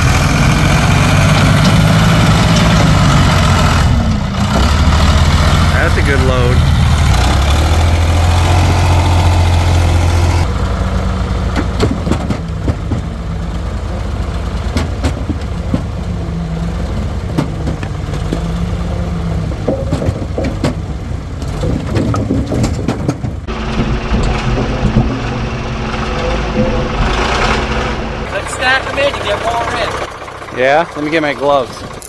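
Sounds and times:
backhoe engine running: 0.0 - 32.0
firewood clattering into metal bed: 19.6 - 25.2.

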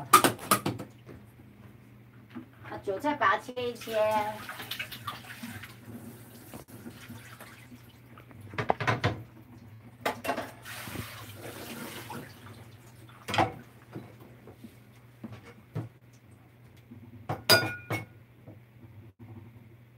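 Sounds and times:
hands rinsing in basin: 3.6 - 8.6, 10.4 - 15.0
tap water running into sink: 3.6 - 14.1
knocks and splashes: 3.8 - 5.9, 6.5 - 9.3, 10.0 - 14.1.

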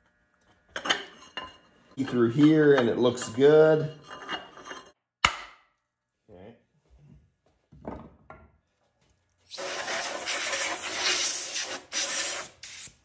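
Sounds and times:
hand tool scraping cast iron: 0.8 - 5.0.

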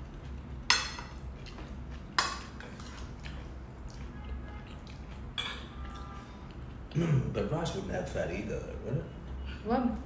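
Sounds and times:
cutlery clinking on plates: 5.4 - 6.0.

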